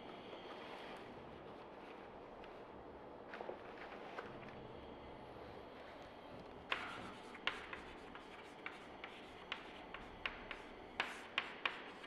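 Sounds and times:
chalk tapping and scraping on chalkboard: 0:06.7 - 0:12.0.

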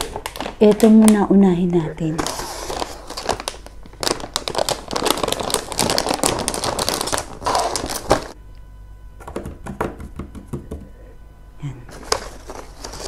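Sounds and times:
plastic bag crinkling: 0:00.0 - 0:08.4, 0:11.9 - 0:13.0.

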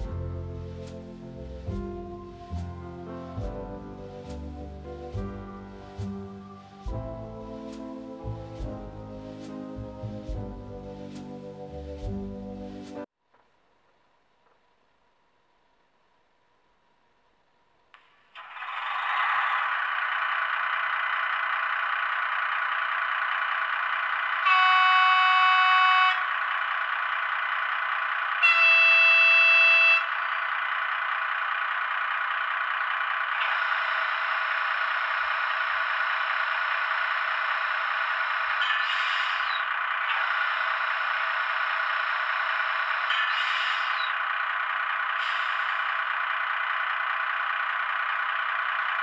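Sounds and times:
diesel engine running: 0:00.0 - 0:13.0, 0:18.4 - 0:24.6, 0:26.2 - 0:28.5, 0:29.6 - 0:38.6, 0:39.6 - 0:49.0
locomotive horn blasts: 0:24.4 - 0:26.3, 0:28.4 - 0:30.1.

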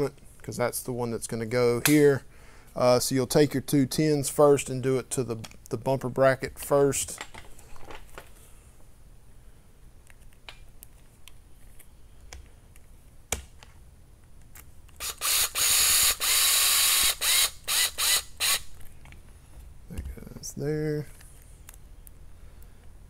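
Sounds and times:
power screwdriver driving screws: 0:15.0 - 0:18.7.

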